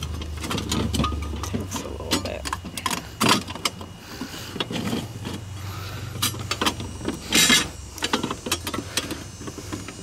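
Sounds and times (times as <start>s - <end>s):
metal scrape: 2.2s - 10.0s.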